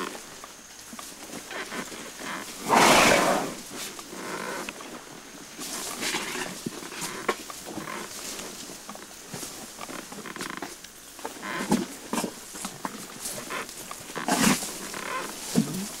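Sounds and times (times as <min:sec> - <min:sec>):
tall grass swishing: 0:02.6 - 0:03.8.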